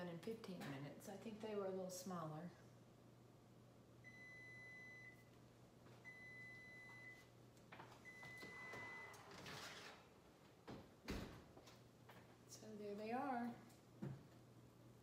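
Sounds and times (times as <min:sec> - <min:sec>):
oven timer beeps: 0:04.0 - 0:05.3, 0:06.0 - 0:07.3, 0:08.0 - 0:09.2.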